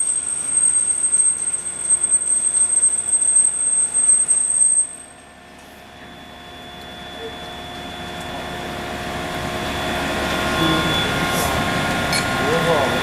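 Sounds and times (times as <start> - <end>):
high-pitched machine whine: 0.0 - 13.0
machine hum: 5.1 - 13.0.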